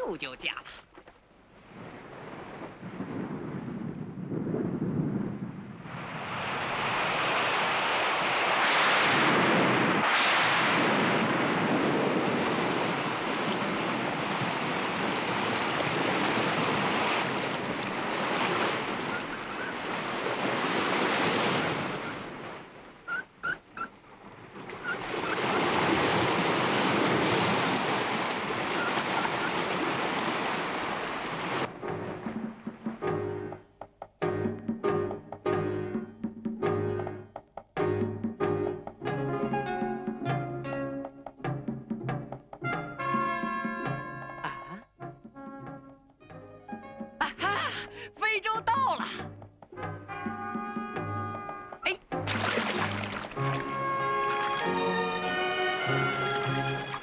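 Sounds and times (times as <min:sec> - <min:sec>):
storm waves crashing: 0:01.5 - 0:23.1, 0:24.0 - 0:33.0, 0:52.2 - 0:55.2.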